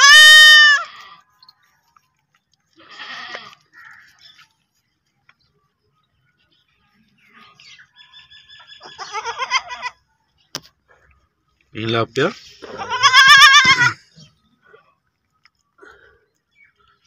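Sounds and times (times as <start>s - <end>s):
goat kid bleating: 0.0s - 1.2s, 2.8s - 4.2s, 8.8s - 10.0s, 12.6s - 14.3s.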